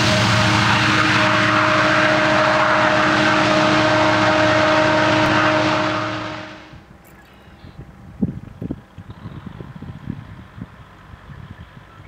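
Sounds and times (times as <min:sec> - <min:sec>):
droning hum: 0:00.0 - 0:06.9
train wheels rumbling on rail: 0:00.0 - 0:07.0.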